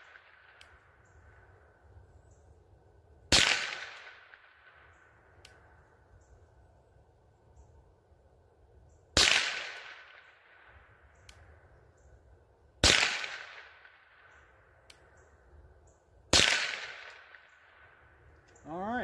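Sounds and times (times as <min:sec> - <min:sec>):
rifle shots: 0:03.3 - 0:04.8, 0:09.2 - 0:10.7, 0:12.8 - 0:14.2, 0:16.3 - 0:17.8.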